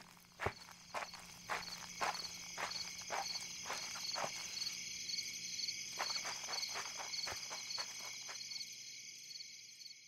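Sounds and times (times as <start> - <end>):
footsteps through mud: 0.0 - 4.8, 5.9 - 8.4
crickets chirping: 0.0 - 10.0.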